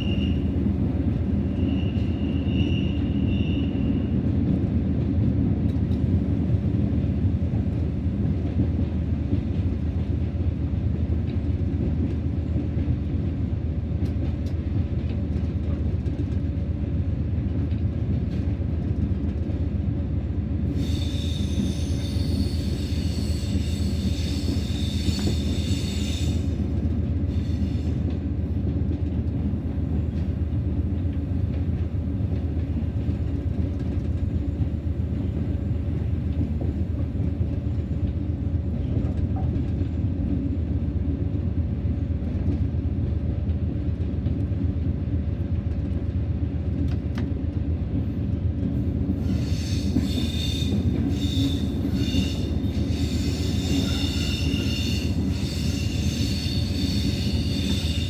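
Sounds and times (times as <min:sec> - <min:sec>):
wheel squeal: 0:49.3 - 0:58.0.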